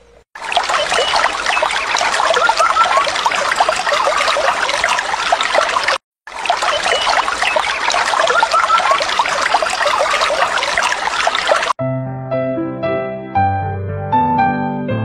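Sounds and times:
bird chirps: 0.0 - 5.9, 6.5 - 11.7
stream trickling over stones: 0.4 - 11.8.

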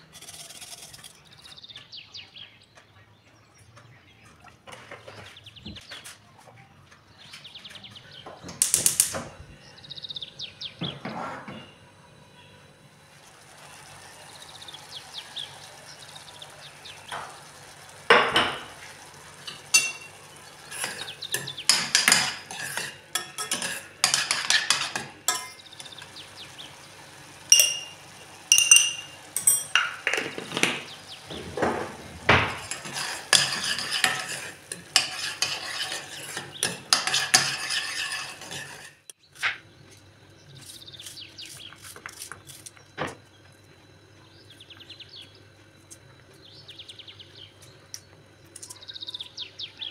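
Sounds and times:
metal spoon scraping saucepan: 0.0 - 1.3, 19.4 - 26.1, 27.5 - 30.7, 32.5 - 39.2
spoon clinking against pan: 19.5 - 26.0, 27.5 - 30.2.

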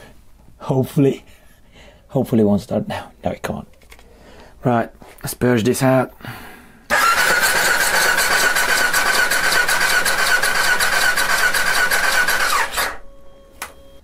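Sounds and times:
starter motor cranking engine: 6.9 - 13.0.

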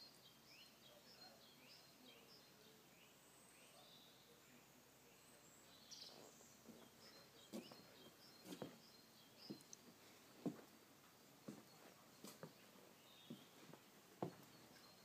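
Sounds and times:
faint bird chirps: 0.0 - 10.6, 11.4 - 15.0
footsteps on wooden decking: 6.0 - 15.0.

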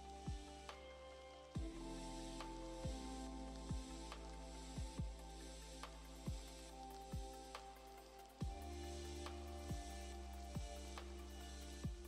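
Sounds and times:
deep sliding bass beat: 1.6 - 7.4, 8.4 - 12.0.

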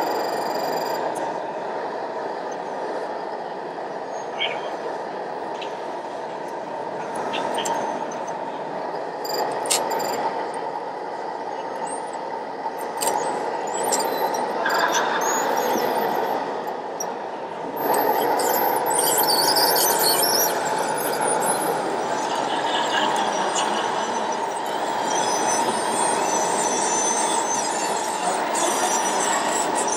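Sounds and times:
steady rushing noise: 0.9 - 25.0
tracks squealing: 12.8 - 16.7, 17.8 - 29.9.

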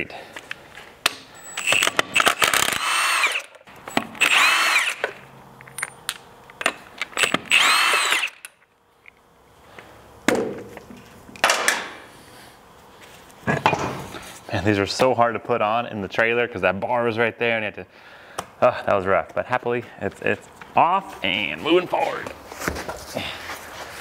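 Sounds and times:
impact wrench whining: 1.1 - 5.3, 6.6 - 8.6.

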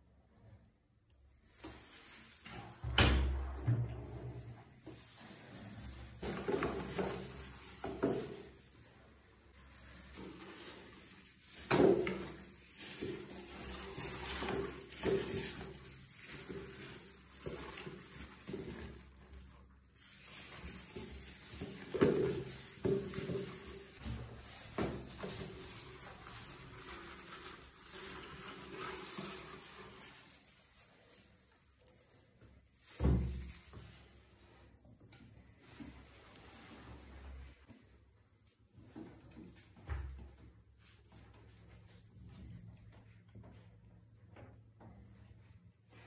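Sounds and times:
rats rustling in bedding: 1.4 - 34.8.

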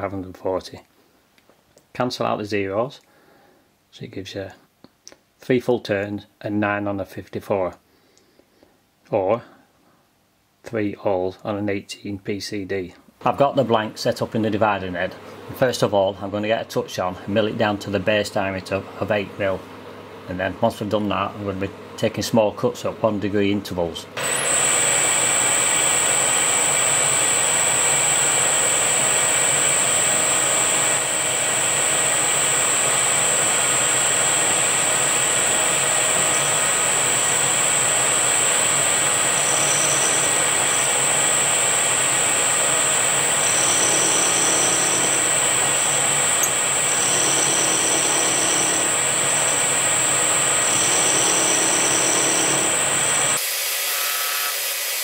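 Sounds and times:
milling machine whine: 24.2 - 55.0.

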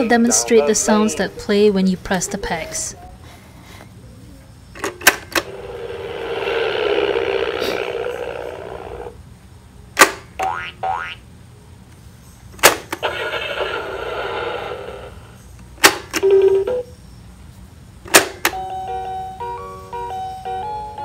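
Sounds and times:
toy electronic sound effect: 5.5 - 9.1, 13.0 - 15.2.

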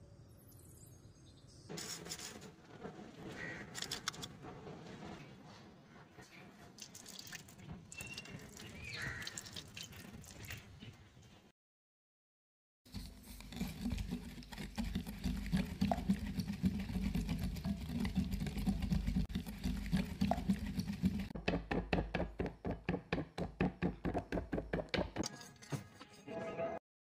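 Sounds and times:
whisk clinking and sloshing in bowl: 13.0 - 21.4.

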